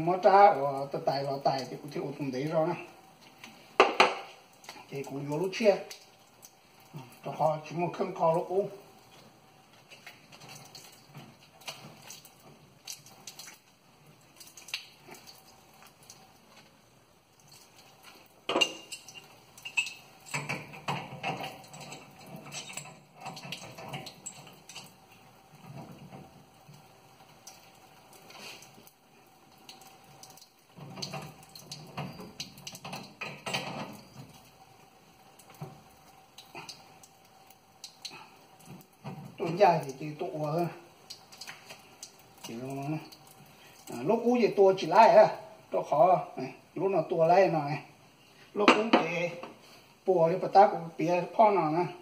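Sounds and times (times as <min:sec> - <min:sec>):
metal clinks and knocks of faucet: 0:03.8 - 0:04.3, 0:18.5 - 0:25.0, 0:30.8 - 0:34.4.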